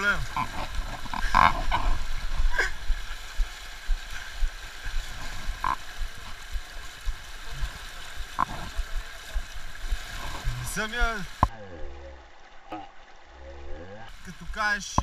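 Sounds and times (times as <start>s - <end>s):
river rushing over riffles: 0.0s - 11.5s.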